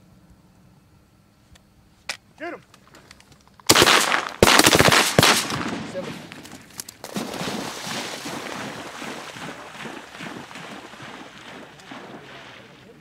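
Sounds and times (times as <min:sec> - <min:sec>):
shotgun blasts: 0:03.7 - 0:08.8
dog splashing through water: 0:06.4 - 0:13.0.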